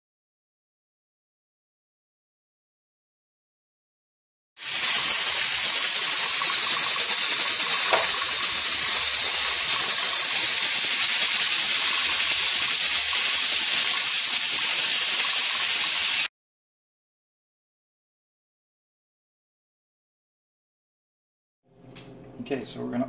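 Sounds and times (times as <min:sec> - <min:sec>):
pressure canner steam hissing: 0:04.6 - 0:16.3.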